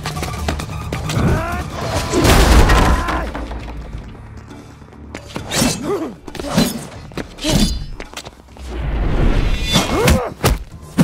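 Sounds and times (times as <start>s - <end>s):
splintering debris: 1.8s - 3.9s
table smashing: 2.1s - 3.6s.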